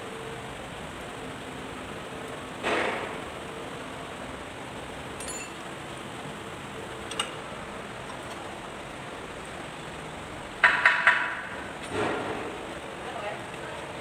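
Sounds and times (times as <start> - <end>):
loud metallic clinks: 5.2 - 5.6.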